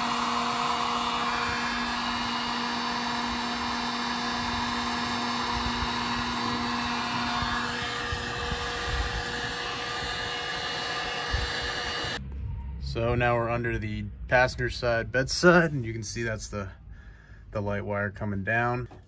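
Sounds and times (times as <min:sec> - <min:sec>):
heat gun blowing: 0:00.0 - 0:12.2.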